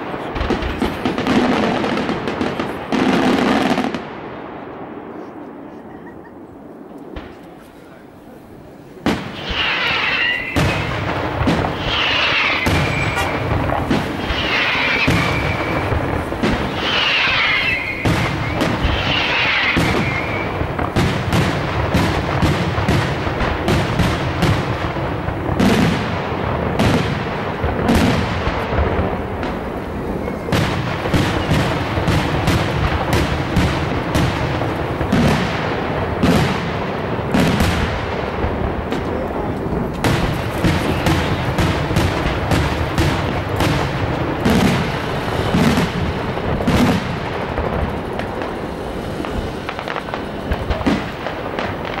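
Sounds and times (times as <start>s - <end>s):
fireworks bangs and crackling: 0.0s - 52.0s
fireworks whistles falling in pitch: 9.1s - 21.1s, 29.8s - 32.7s, 40.3s - 41.6s.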